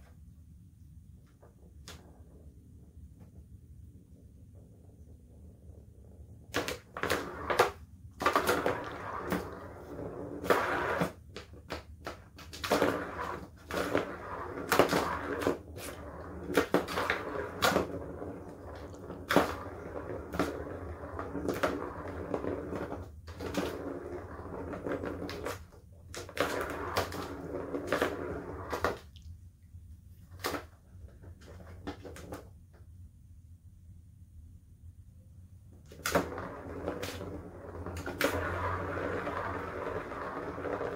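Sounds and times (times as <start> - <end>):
plastic ball rattling around track: 6.4 - 29.1.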